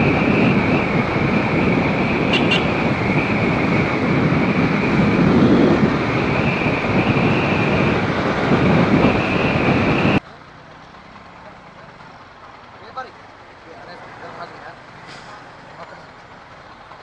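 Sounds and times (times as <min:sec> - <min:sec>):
wind rushing over microphone: 0:00.0 - 0:10.2
motorcycle and road noise: 0:00.0 - 0:17.0.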